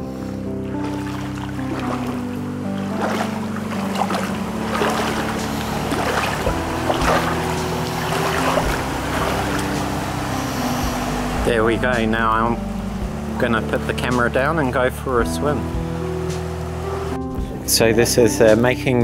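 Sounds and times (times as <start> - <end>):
background music with low notes: 0.0 - 19.0.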